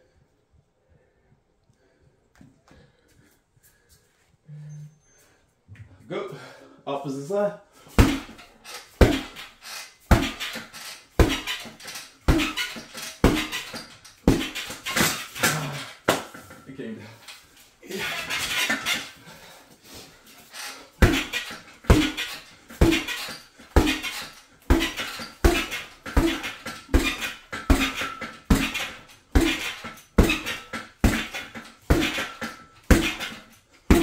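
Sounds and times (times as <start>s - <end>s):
exercise thuds: 7.8s - 34.0s.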